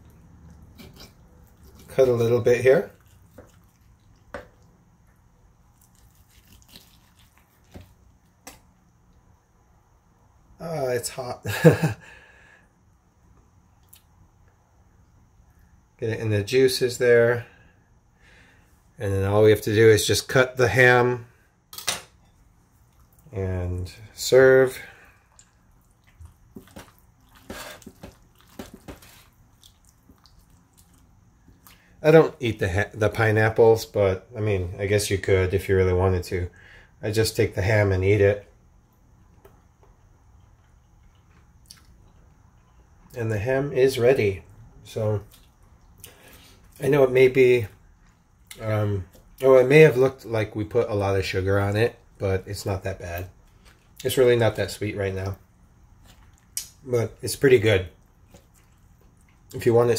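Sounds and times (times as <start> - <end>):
brush dabbing wet juices: 0.0 - 8.7, 24.3 - 31.9.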